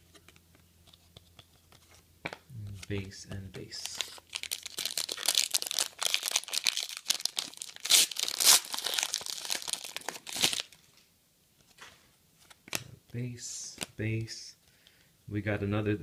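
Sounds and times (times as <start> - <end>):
foil wrapper crackling: 3.8 - 10.8.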